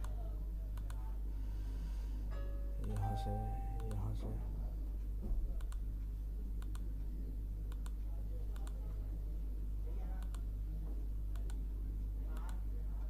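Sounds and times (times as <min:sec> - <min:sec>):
low electrical hum: 0:00.0 - 0:13.0
computer mouse clicking: 0:00.8 - 0:01.0, 0:06.6 - 0:06.9, 0:07.7 - 0:08.8, 0:10.2 - 0:10.5, 0:11.3 - 0:11.6, 0:12.4 - 0:12.6.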